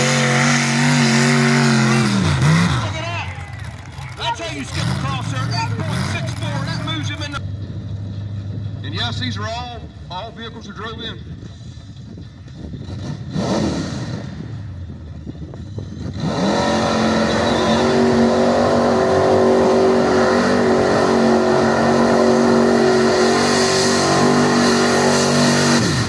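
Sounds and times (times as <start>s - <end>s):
truck engine revving under load: 0.0s - 8.8s, 12.6s - 26.0s.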